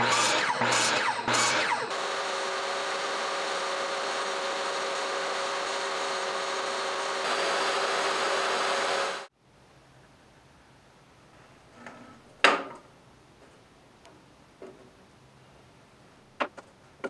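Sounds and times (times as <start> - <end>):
table saw whining: 0.0 - 9.3.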